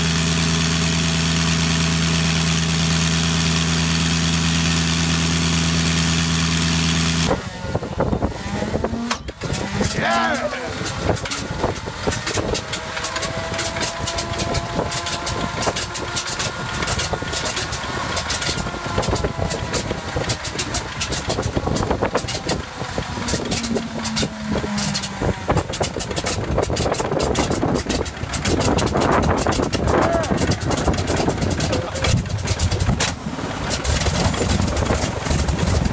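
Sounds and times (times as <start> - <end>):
starter whine: 0.0 - 35.9
aircraft engine pops and bangs: 10.8 - 35.9.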